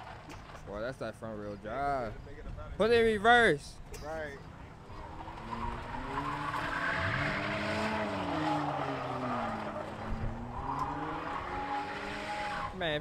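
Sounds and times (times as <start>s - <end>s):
tyres spinning on asphalt: 0.0s - 1.9s, 4.4s - 13.0s
car engine revving: 4.8s - 13.0s.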